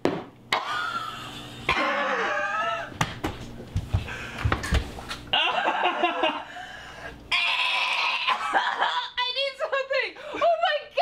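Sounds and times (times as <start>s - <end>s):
woman laughing and shrieking: 1.8s - 2.9s
thumps and slaps: 3.0s - 5.0s.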